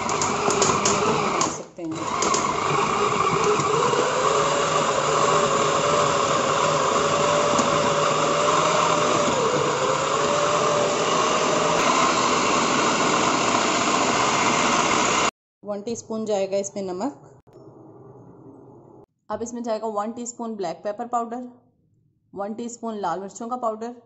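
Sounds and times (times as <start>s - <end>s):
food processor motor running: 0.0s - 15.3s.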